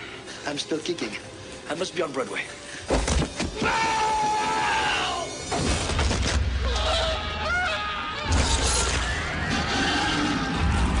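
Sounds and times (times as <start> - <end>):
soundtrack music: 0.4 - 11.0
men screaming: 3.6 - 5.5, 6.6 - 11.0.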